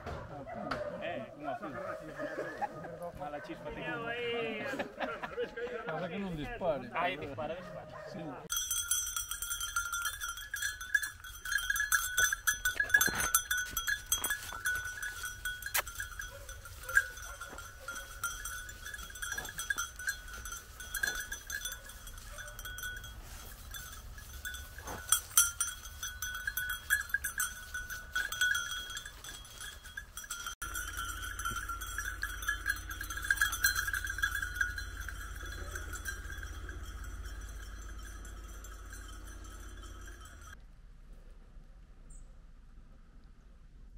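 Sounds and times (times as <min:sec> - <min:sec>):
dog collar bells ringing: 0:08.5 - 0:40.6
rustling: 0:08.7 - 0:41.4.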